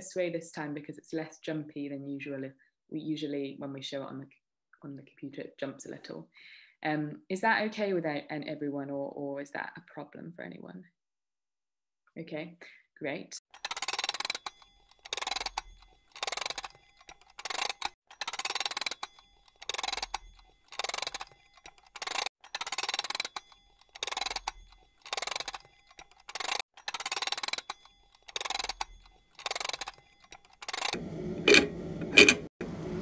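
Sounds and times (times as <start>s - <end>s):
clock ticking: 13.6s - 31.6s.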